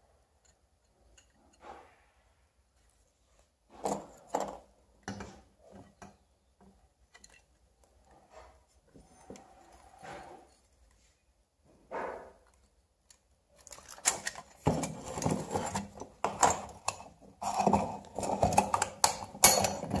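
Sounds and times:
metal parts knocking and scraping: 3.7 - 7.6, 13.6 - 20.0.

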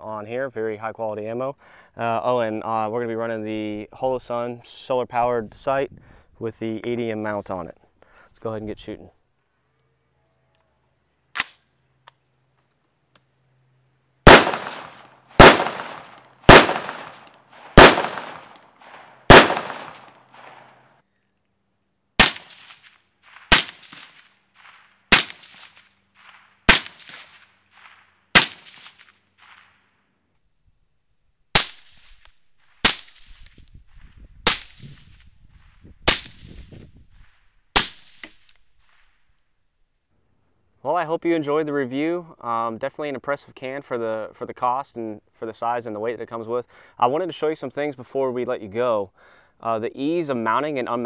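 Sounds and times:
suppressed rifle shots: 14.3 - 20.7, 22.2 - 29.7, 31.5 - 32.2, 32.8 - 33.4, 34.4 - 34.8, 36.0 - 36.5, 37.7 - 39.0
rifle shots ringing: 14.3 - 20.8, 22.2 - 29.7.

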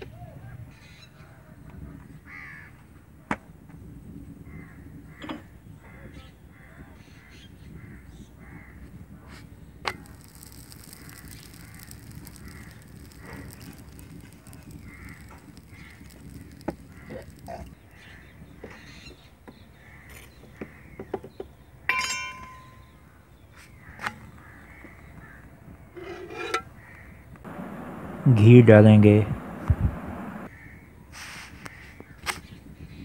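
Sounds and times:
crows cawing: 2.3 - 2.8, 11.0 - 18.3
low steady rumble: 27.5 - 30.5.

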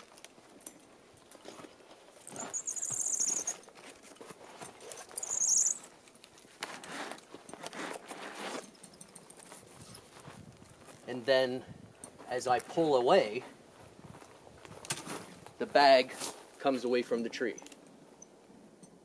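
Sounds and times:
high squeaky trills: 2.3 - 3.7, 4.8 - 6.0.

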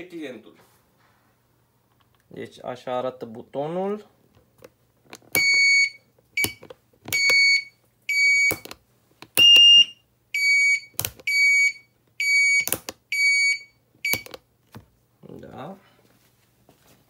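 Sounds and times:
turn signal beeps: 9.4 - 14.3.

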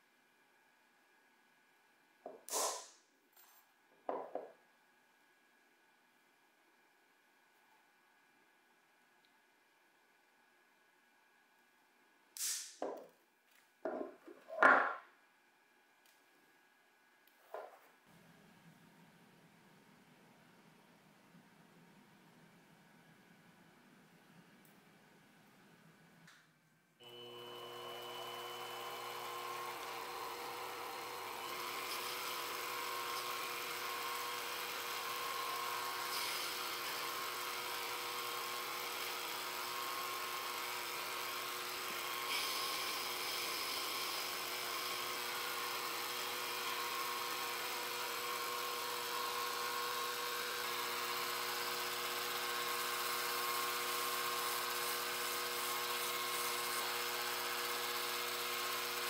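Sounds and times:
lathe motor whining: 27.0 - 59.0.

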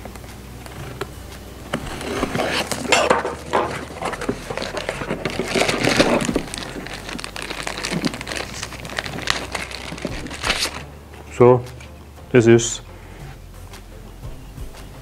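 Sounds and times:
plastic packaging crinkling: 1.6 - 10.9
cardboard box flaps opening: 1.7 - 10.8.

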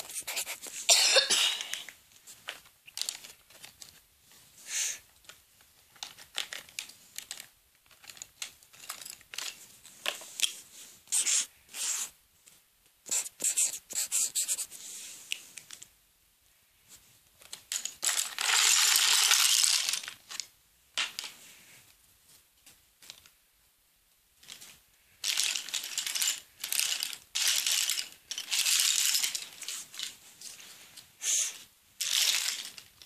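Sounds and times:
paper rustling and crinkling: 1.6 - 4.6, 5.2 - 12.6, 24.4 - 31.0, 32.0 - 33.0.

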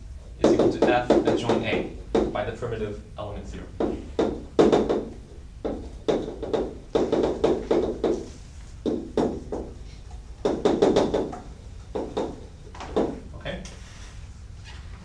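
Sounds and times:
chalk tapping and scraping on blackboard: 3.8 - 13.2.

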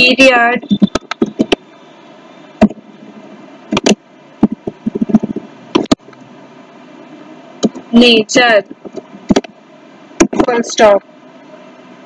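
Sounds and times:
keyboard typing clicks: 0.6 - 1.7, 3.7 - 6.2, 7.6 - 7.9, 8.7 - 9.5.

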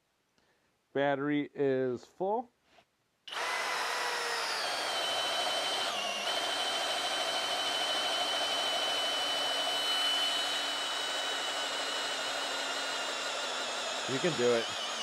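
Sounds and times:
cordless drill motor whine: 3.3 - 15.0.

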